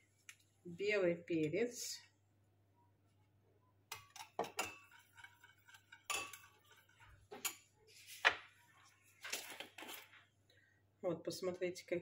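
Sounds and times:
spoon clinking against bowl: 3.9s - 7.7s.

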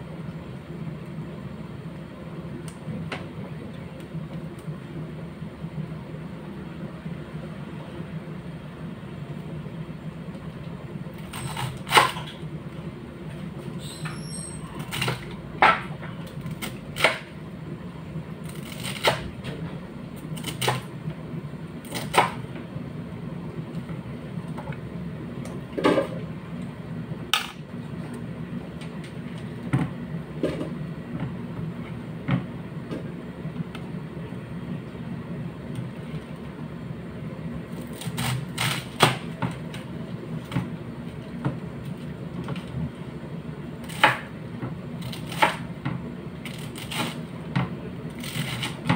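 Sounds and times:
knife cutting cabbage on board: 18.5s - 19.3s.

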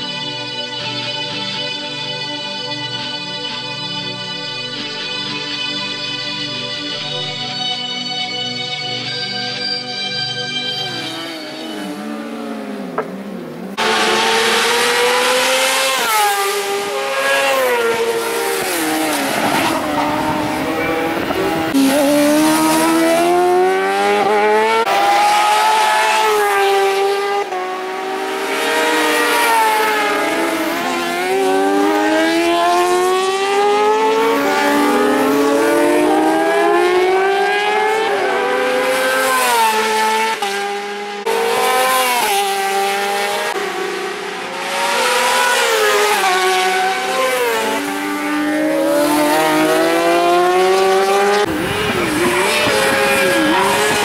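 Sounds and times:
racing motorcycles passing at high revs: 10.8s - 54.0s.

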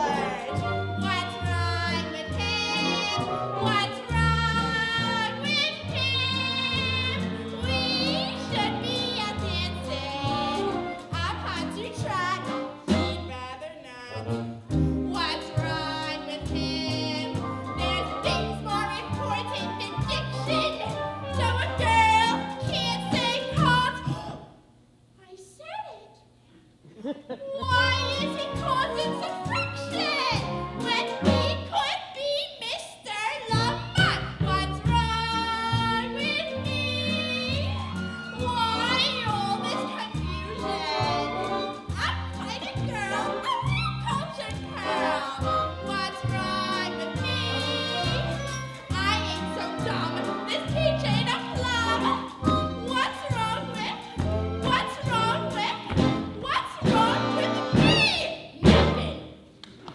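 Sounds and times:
pit band playing show tune: 0.0s - 13.4s, 14.1s - 24.4s, 27.6s - 31.9s, 33.5s - 59.4s
woman singing: 0.0s - 14.3s, 15.1s - 24.4s, 27.6s - 32.0s, 32.7s - 59.1s
upright bass line: 33.6s - 59.2s.

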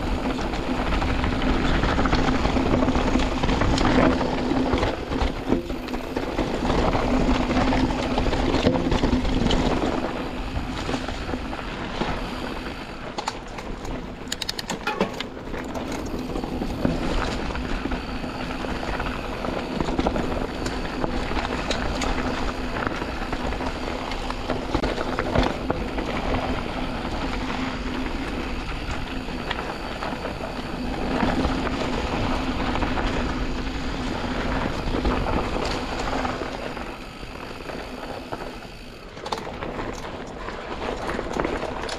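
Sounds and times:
bike knocking and rattling: 0.0s - 41.9s
tyres rumbling over dirt and stones: 0.0s - 41.9s
sharp clicks: 13.8s - 15.3s.

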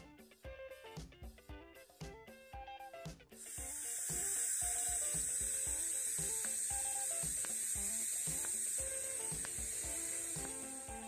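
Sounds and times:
background music with steady beat: 0.0s - 11.0s
welding arc hissing: 3.4s - 11.0s.

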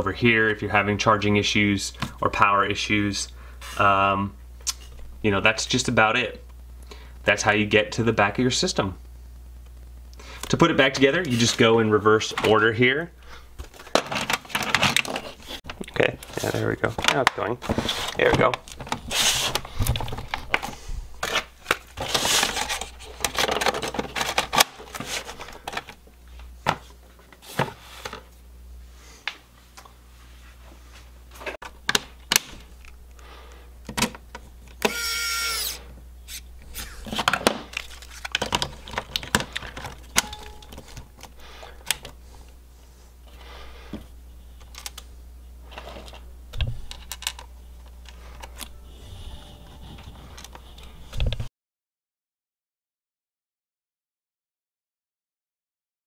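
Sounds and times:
electric screwdriver whirring: 34.8s - 35.8s.

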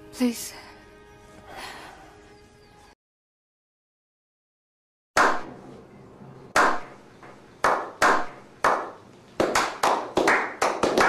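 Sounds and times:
group slow hand claps: 6.6s - 11.0s.

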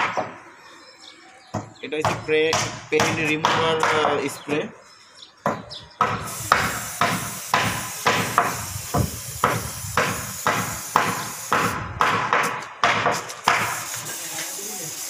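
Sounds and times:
aerosol spray hiss: 6.2s - 11.8s, 13.2s - 15.0s.

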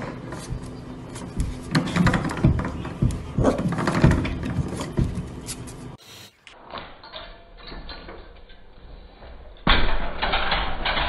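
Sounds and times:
puppy claws scratching at door: 0.0s - 6.0s.

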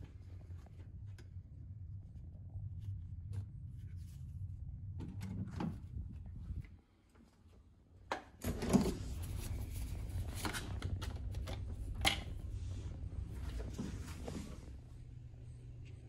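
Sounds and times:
steady low hum: 0.0s - 16.0s
door opening: 8.4s - 12.6s
footsteps: 11.8s - 15.0s.

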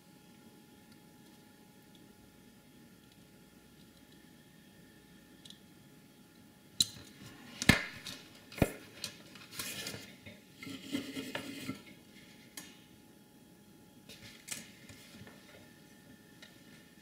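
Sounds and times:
tools clattering and scraping: 9.0s - 12.0s.

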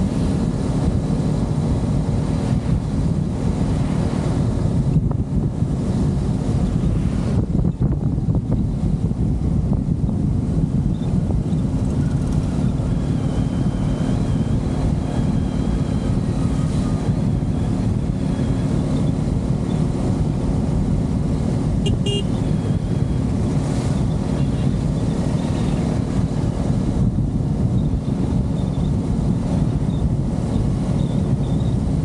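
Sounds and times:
motorcycle engine running: 0.0s - 32.0s
wind rush on microphone: 0.0s - 32.0s
short horn toot: 21.8s - 22.6s.

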